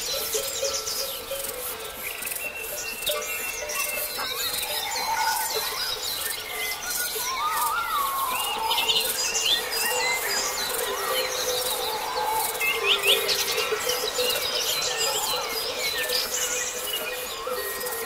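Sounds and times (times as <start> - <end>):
birds chirping and singing: 0.0 - 18.0
low warbling bird phrase: 4.3 - 16.7.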